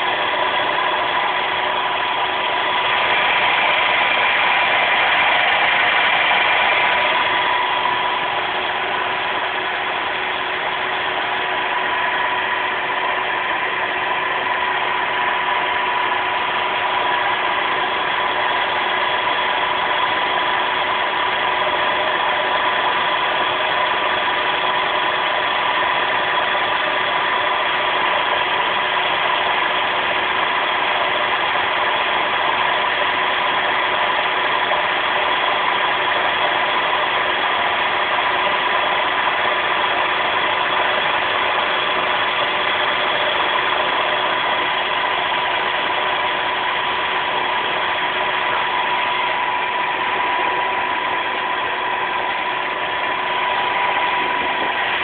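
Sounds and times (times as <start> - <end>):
hydraulic pump motor humming: 0.0 - 55.0.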